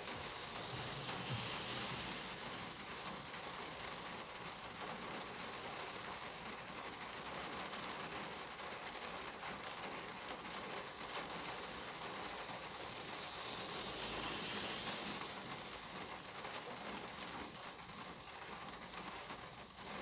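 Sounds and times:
rain on car windshield: 1.9 - 13.4, 16.0 - 20.0.

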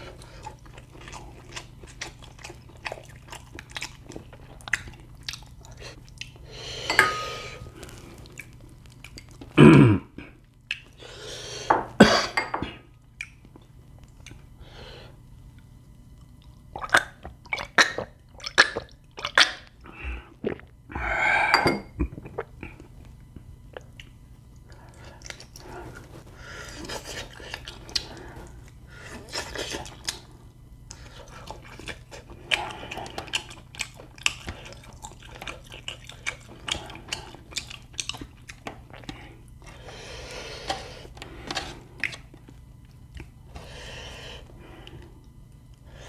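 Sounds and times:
person chewing and smacking: 0.0 - 6.4, 7.5 - 9.6, 10.2 - 11.0, 12.9 - 14.6, 15.5 - 20.9, 22.0 - 43.7
dishes clinking: 6.9 - 7.5, 11.7 - 12.8, 21.5 - 22.0.

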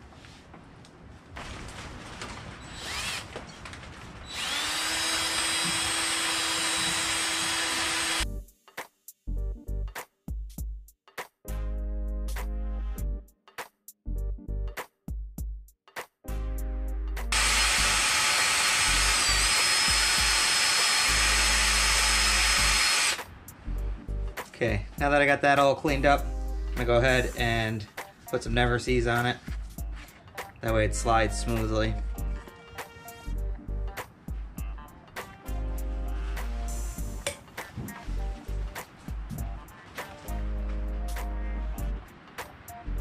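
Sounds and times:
cordless drill with wire wheel: 2.7 - 3.4, 4.3 - 8.2, 17.3 - 23.2
power tool whining: 2.7 - 3.4, 4.3 - 8.2, 17.3 - 23.2.

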